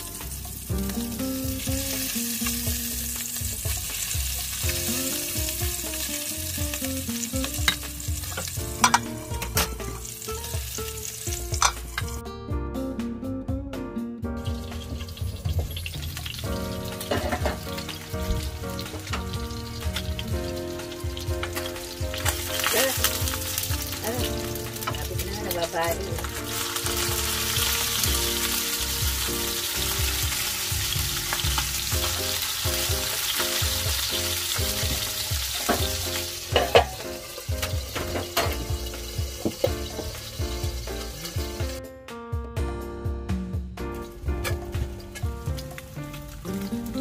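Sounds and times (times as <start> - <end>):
fish sizzling in oil: 0.0 - 12.2, 14.4 - 41.8, 44.0 - 47.0
metal lid clanking on pan: 7.6 - 9.8, 11.6 - 12.0, 17.0 - 17.7, 35.6 - 37.0.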